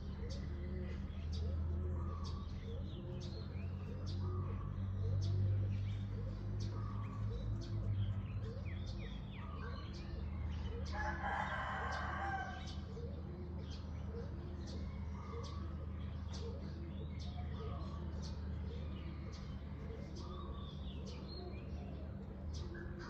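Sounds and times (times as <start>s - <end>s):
small birds chirping: 0.0s - 23.0s
rooster crowing: 10.9s - 12.8s.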